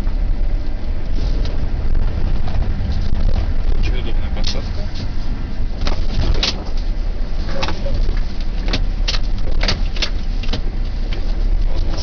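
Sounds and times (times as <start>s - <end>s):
truck engine drone: 0.0s - 12.0s
sharp clicks and knocks: 5.8s - 6.9s, 7.6s - 12.0s.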